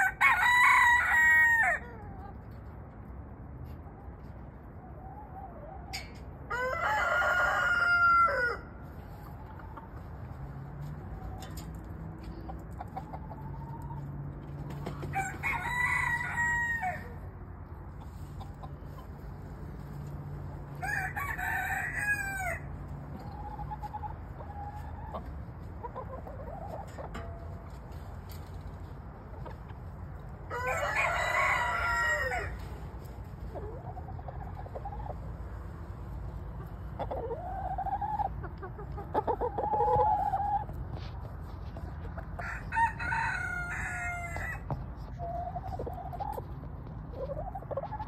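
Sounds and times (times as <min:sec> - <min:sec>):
rooster crowing: 0:00.0 - 0:02.0, 0:06.5 - 0:08.8, 0:15.1 - 0:17.2, 0:20.7 - 0:22.7, 0:30.5 - 0:32.6, 0:42.4 - 0:44.7.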